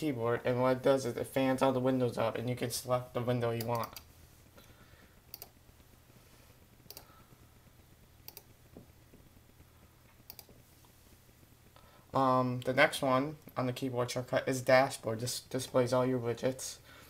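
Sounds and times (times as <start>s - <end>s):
faint sharp computer clicks: 5.3s - 5.6s, 6.9s - 7.1s, 8.2s - 8.5s, 10.2s - 10.6s.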